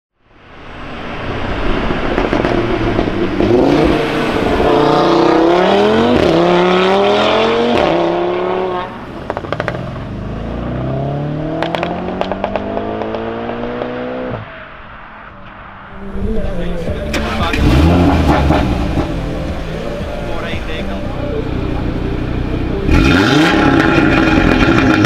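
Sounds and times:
car engine accelerating through gears: 1.5 - 14.4, 17.0 - 25.0
exhaust pops and crackles: 1.9 - 3.6, 9.2 - 9.9, 11.6 - 13.9, 23.0 - 25.0.

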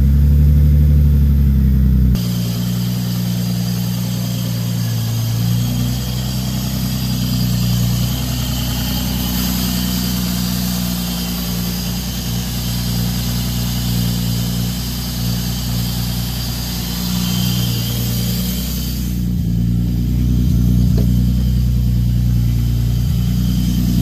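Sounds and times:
car engine idling: 0.0 - 24.0
high hiss: 2.2 - 24.0
faint engine knocks: 20.8 - 21.5.

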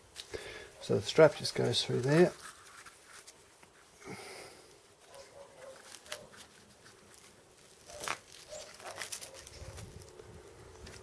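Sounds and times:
velcro strap rustling and scraping: 1.0 - 4.0, 4.7 - 11.0.

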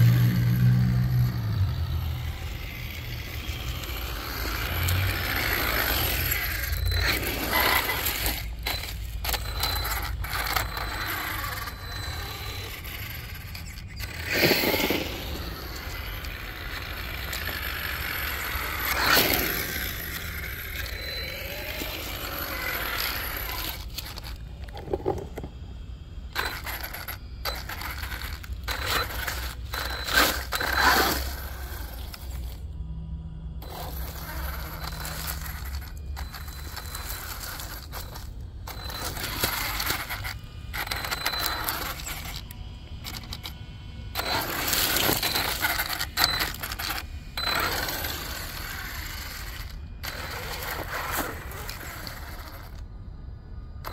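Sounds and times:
rc truck motor whining and rattling: 0.0 - 53.9
tyres scrubbing on asphalt and leaves: 3.2 - 20.2, 26.4 - 32.5, 33.6 - 43.4, 44.2 - 52.8.

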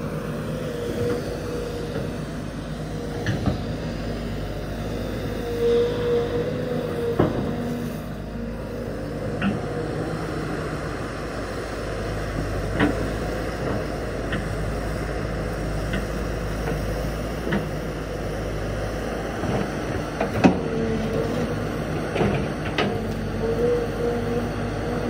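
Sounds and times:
excavator diesel engine: 0.0 - 25.0.

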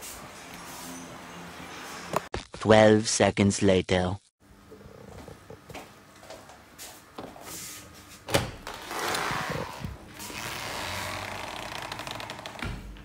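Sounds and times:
door swinging open: 8.3 - 13.0.

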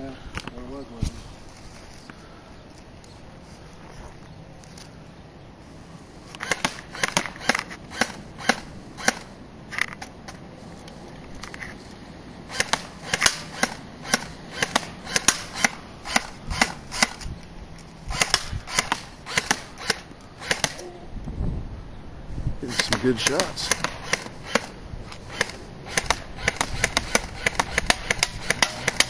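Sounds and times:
airsoft gun snapping shots: 6.4 - 10.1, 12.5 - 17.3, 18.1 - 20.8, 22.7 - 29.0.

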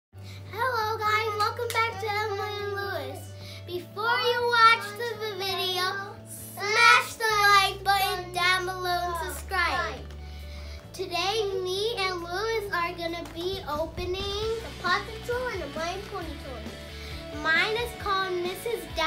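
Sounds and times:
backing music with bass line: 7.3 - 19.0.

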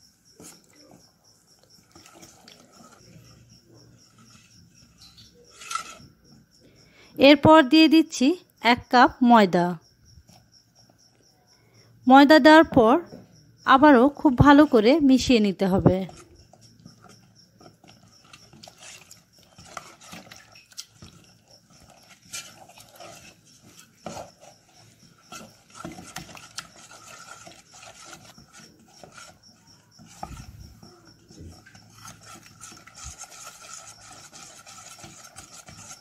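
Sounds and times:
spoon scraping a bowl: 1.6 - 6.2, 16.0 - 36.0.

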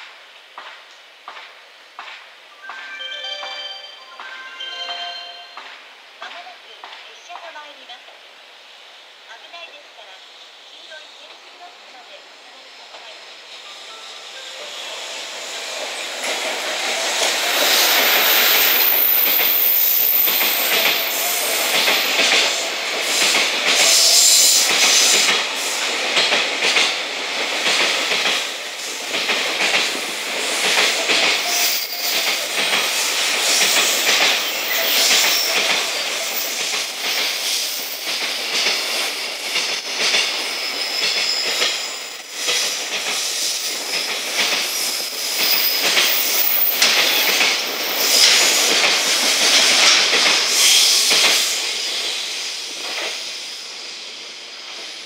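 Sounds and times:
electric locomotive passing: 2.4 - 7.0, 8.1 - 55.0
train wheels clattering over rail joints: 32.1 - 53.2.

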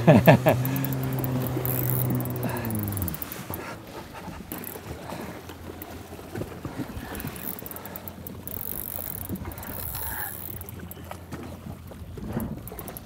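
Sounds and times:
low steady hum: 0.0 - 9.8
water slapping against jet ski: 0.0 - 13.0.

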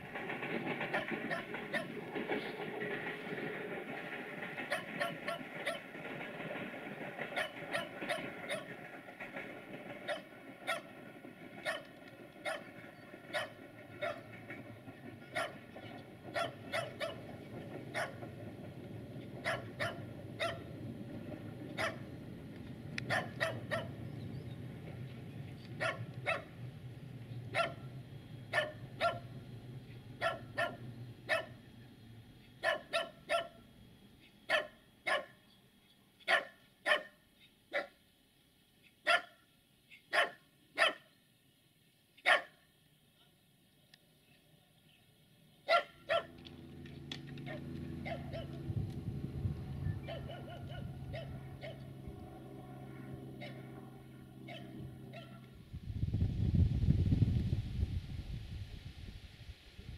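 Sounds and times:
small dog barking: 4.7 - 5.8, 7.4 - 8.7, 10.1 - 10.9, 11.6 - 14.2, 15.3 - 15.6, 16.3 - 17.3, 17.9 - 18.2, 19.4 - 20.7, 21.8 - 22.1, 23.1 - 24.0, 25.8 - 26.5, 27.5 - 27.8, 28.5 - 29.2, 30.2 - 31.6, 32.6 - 33.6, 34.5 - 35.4, 36.2 - 38.0, 39.0 - 41.1, 42.2 - 42.6, 45.7 - 46.4, 47.4 - 48.6, 50.0 - 51.8, 53.4 - 53.6, 54.5 - 55.5
low steady rumble: 46.1 - 59.9.

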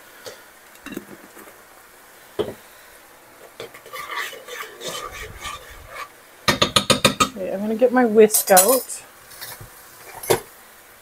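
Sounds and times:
utensil scraping and clinking in pan: 3.5 - 6.1, 8.3 - 10.4
utensil knocking against pan: 6.5 - 7.4.

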